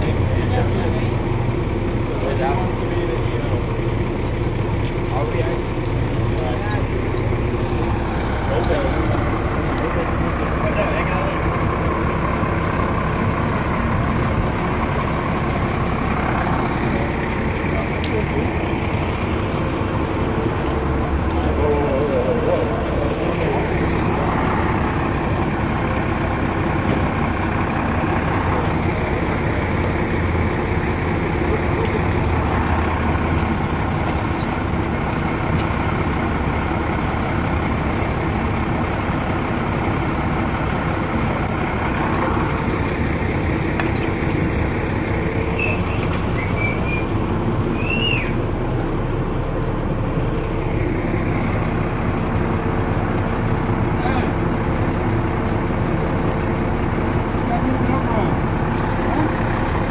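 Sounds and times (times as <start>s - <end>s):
heavy truck engine droning: 0.0s - 59.9s
high rising squeaks: 45.4s - 48.4s.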